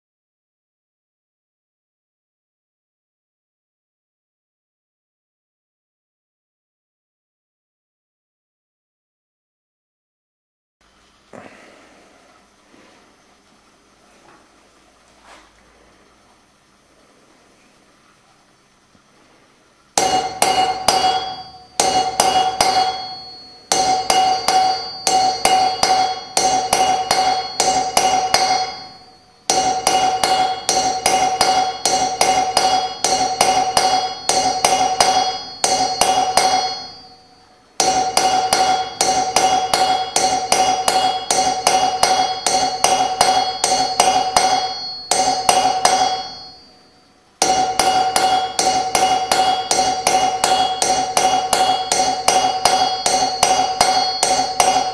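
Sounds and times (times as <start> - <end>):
hammer striking metal punch: 20.0 - 46.7, 47.4 - 54.9
steel ringing: 20.0 - 54.9.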